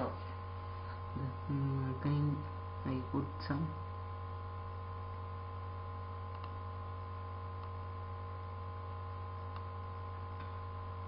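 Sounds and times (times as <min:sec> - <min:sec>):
electrical mains hum: 0:00.0 - 0:11.0
mouse clicks: 0:06.3 - 0:06.6, 0:09.4 - 0:09.7.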